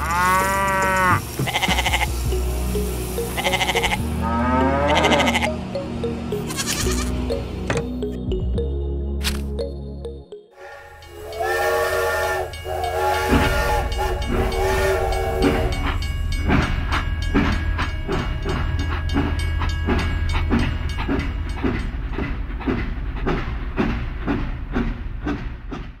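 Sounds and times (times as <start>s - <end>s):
rhythmic wheel clatter: 0.0s - 4.2s, 10.8s - 26.0s
multi-tone horn blasts: 10.6s - 16.0s.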